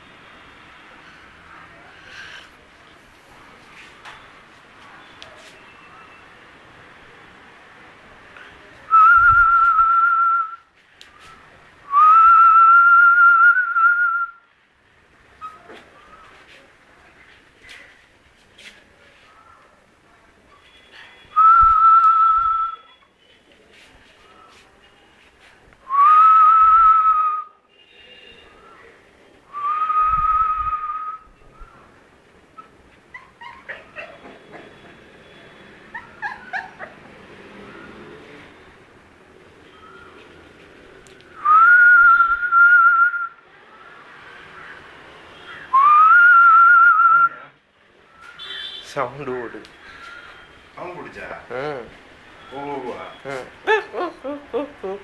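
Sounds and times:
person whistling long notes: 25.9 - 27.5, 41.4 - 43.3, 45.7 - 47.4
puppy whimpering and yipping: 32.6 - 34.6, 35.9 - 37.0.

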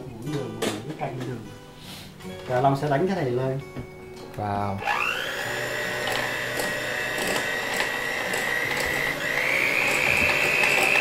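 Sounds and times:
electric hand mixer whining: 4.8 - 11.0.

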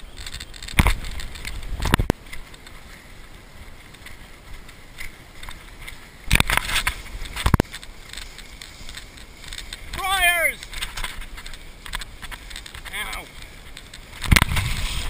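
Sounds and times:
camera handling noise: 0.1 - 2.7, 5.0 - 10.0, 10.6 - 15.0
wind rush: 5.6 - 15.0.

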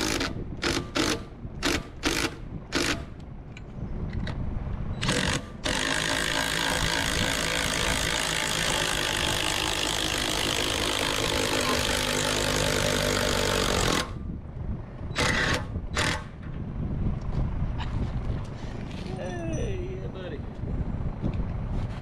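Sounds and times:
cordless drill running: 5.0 - 14.2, 15.2 - 16.3.

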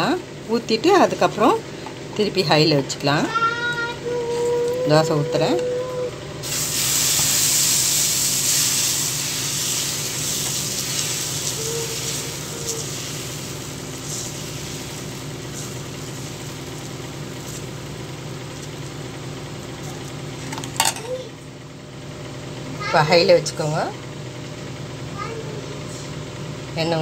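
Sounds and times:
batter sizzling on hot griddle: 6.4 - 20.1.

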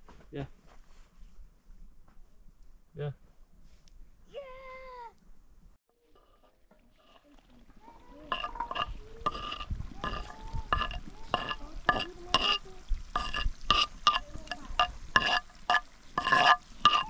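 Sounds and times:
metal spoon stirring in metal pot: 6.0 - 7.4, 8.0 - 17.0.

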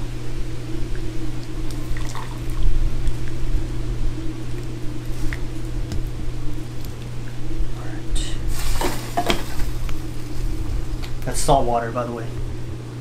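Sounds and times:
steady low hum: 0.0 - 13.0
water bubbling in a pot: 0.4 - 7.5.

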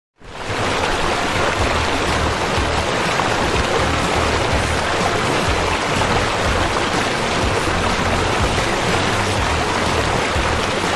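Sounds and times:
waterfall rushing: 0.2 - 10.9
low rumble: 5.5 - 10.7.

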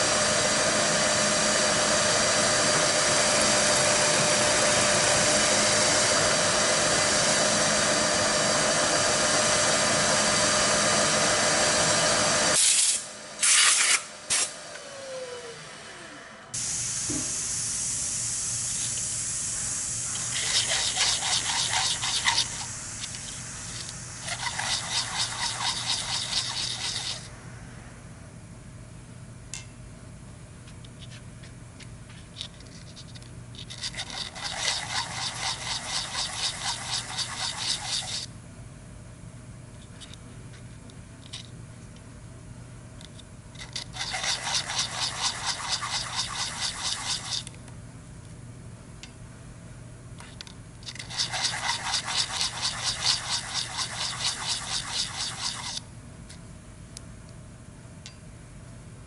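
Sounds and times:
metal scraping on abrasive paper: 20.1 - 22.7, 23.7 - 27.3, 32.9 - 38.3, 43.7 - 47.5, 50.9 - 55.8
metal rubbing on sandpaper: 20.1 - 27.3, 32.4 - 38.3, 43.6 - 47.5, 50.9 - 55.8.

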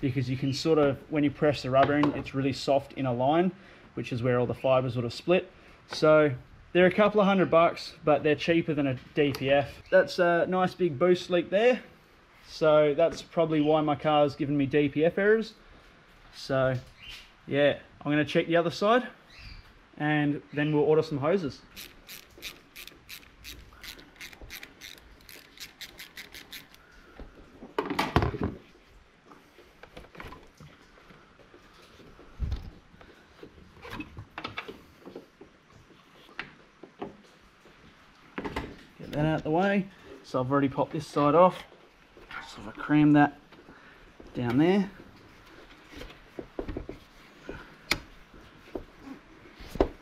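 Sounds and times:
hose rubbing and knocking: 21.7 - 26.8
ratchet clicking metallically: 21.8 - 26.8.

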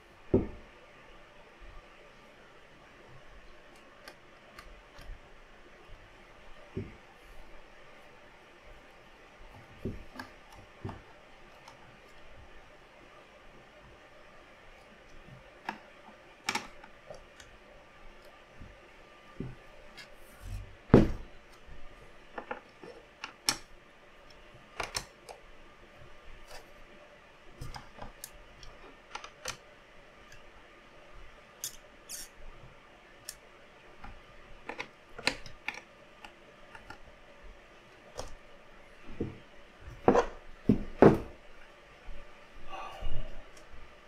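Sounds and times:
clicks and knocks of parts and tools: 31.6 - 32.3, 34.0 - 37.0.

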